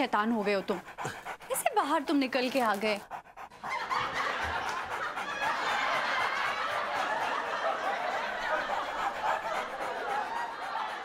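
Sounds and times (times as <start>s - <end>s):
laugh track: 3.2s - 11.0s.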